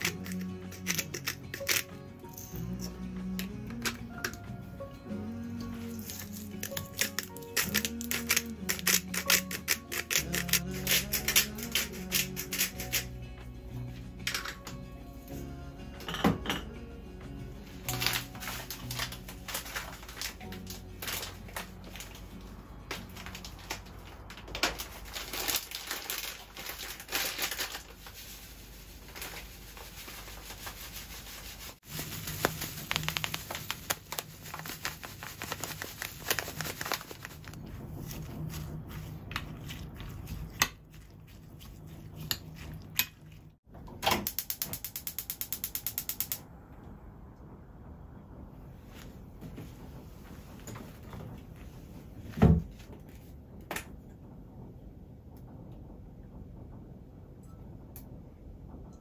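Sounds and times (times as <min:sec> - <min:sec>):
gas stove igniter clicking: 0:44.0 - 0:46.4.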